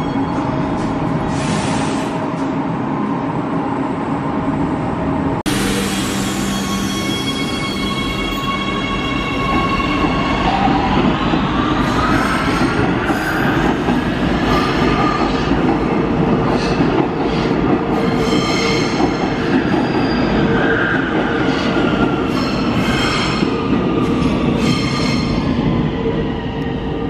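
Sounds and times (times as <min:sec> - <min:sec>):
metro train rumbling: 0:00.0 - 0:27.0
train wheels squealing on rails: 0:05.6 - 0:15.5, 0:16.5 - 0:25.6.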